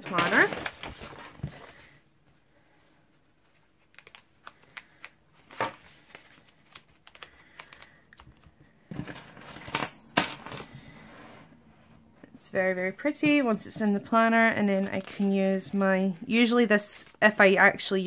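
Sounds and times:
paper rustling: 0.5 - 2.0, 3.2 - 8.6.

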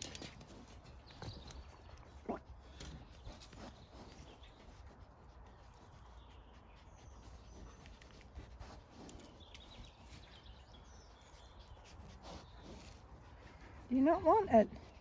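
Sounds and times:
distant bird chirps: 8.9 - 15.0.

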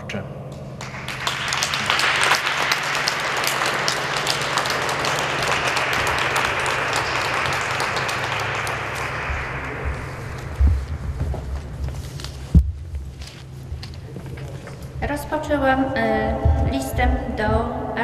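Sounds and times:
steady low hum: 0.0 - 18.0
audience applauding: 0.8 - 12.2.

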